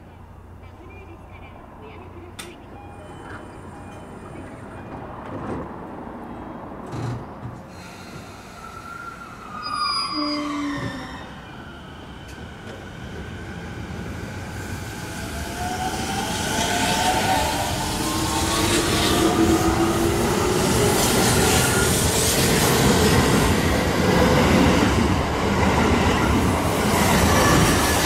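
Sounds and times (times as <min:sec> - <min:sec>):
train doors shutting: 0:02.4 - 0:06.0, 0:06.8 - 0:13.7.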